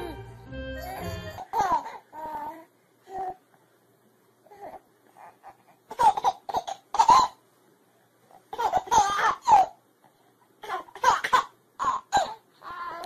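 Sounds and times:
baby laughing: 0.0 - 2.4, 5.2 - 7.4, 8.5 - 9.8.

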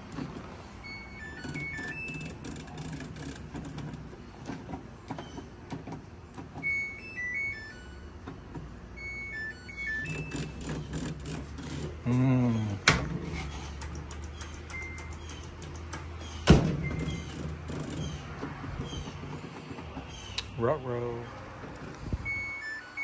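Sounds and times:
electronic beep tunes: 0.8 - 2.3, 6.6 - 8.1, 9.0 - 10.6, 22.2 - 23.0.

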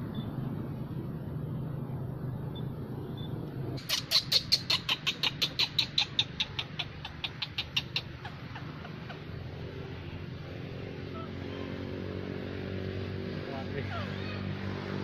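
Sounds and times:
monkey shrill cries: 3.8 - 9.3, 13.8 - 14.6.

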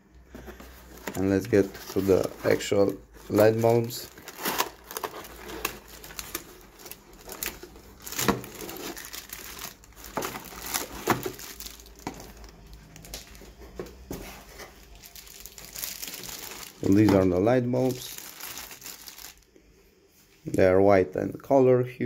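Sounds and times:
cardboard packaging moved: 0.3 - 19.4
plastic wrapping crinkling: 0.4 - 19.5.

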